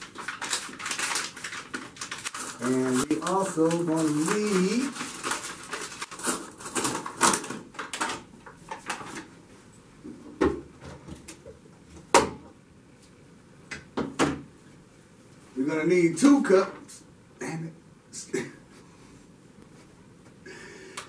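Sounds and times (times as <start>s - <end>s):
paper bag rustling: 0.0s - 7.8s.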